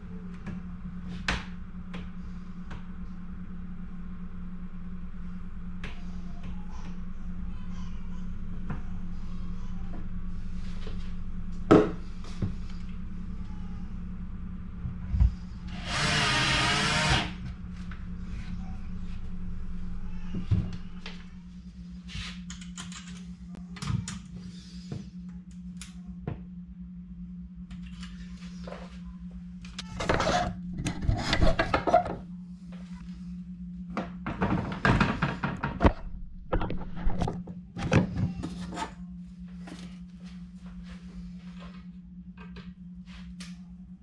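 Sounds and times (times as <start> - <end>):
steady low hum: 0.0 - 44.0
power tool whir: 15.6 - 17.5.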